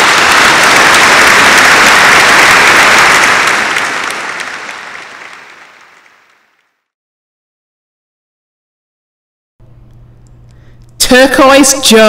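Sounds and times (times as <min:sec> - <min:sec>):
crowd applause: 0:00.0 - 0:06.9.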